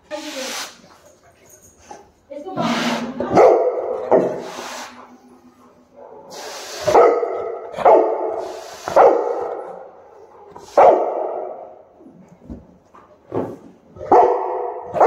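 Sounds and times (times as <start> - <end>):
dog barking deeply: 3.3 - 4.5, 6.0 - 9.9, 10.7 - 11.8, 14.0 - 15.0.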